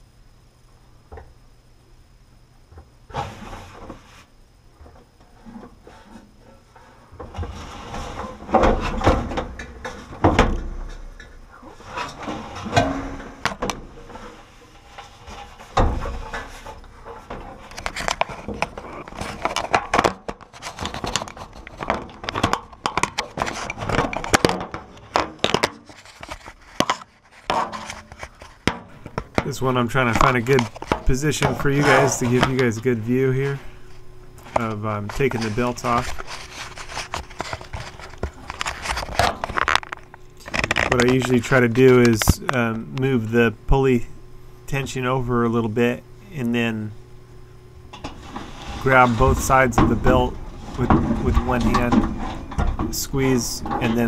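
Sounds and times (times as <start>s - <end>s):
tools clattering in metal cabinet: 11.9s - 14.2s.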